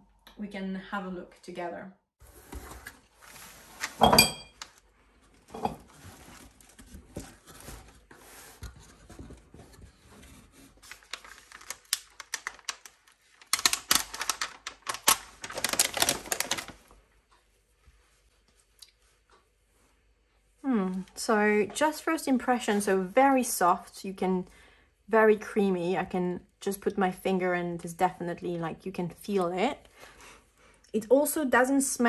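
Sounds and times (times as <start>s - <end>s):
tissue paper rustling: 2.2s - 17.0s.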